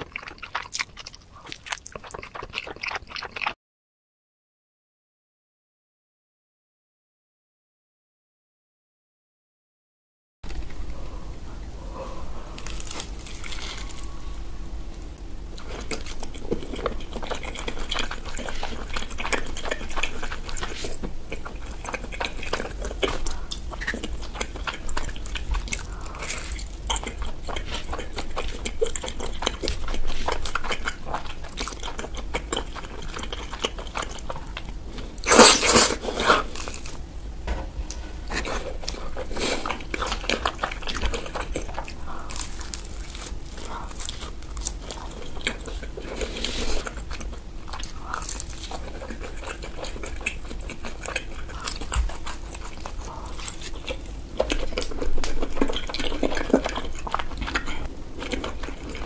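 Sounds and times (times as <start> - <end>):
pizza crust crunching: 12.5 - 14.2, 15.0 - 37.0, 37.8 - 59.0.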